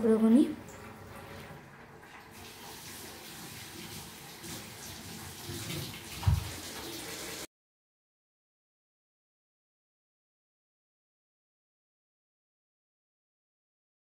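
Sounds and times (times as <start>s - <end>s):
thump: 6.2s - 6.6s.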